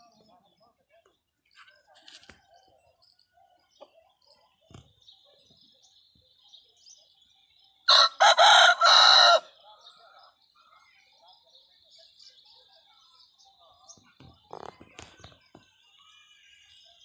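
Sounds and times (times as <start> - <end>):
rooster crowing: 7.9 - 9.5.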